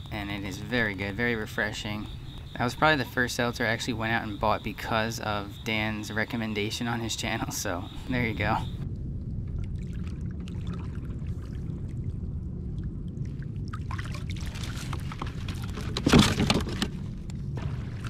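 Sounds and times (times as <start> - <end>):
steady low rumble: 0.0 - 16.0, 16.8 - 18.0
water splashing: 9.4 - 16.9, 17.5 - 18.0
water sloshing against kayak hull: 13.9 - 18.0.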